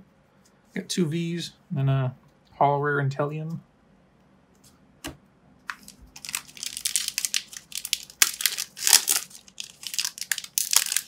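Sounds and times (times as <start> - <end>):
foil wrapper crinkling: 5.7 - 11.0.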